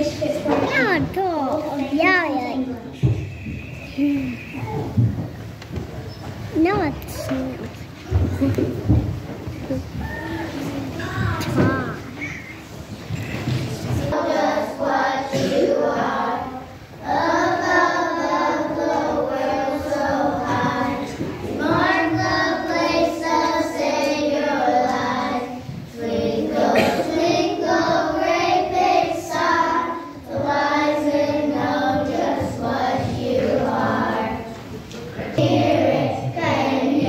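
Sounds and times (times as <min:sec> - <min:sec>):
children singing together: 0:00.0 - 0:00.7, 0:13.5 - 0:37.0.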